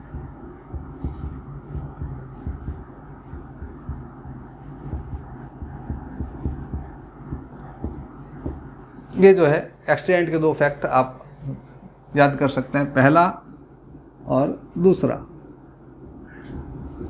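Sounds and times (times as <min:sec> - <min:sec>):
low hum: 0:00.0 - 0:17.0
marker writing on whiteboard: 0:00.4 - 0:08.6.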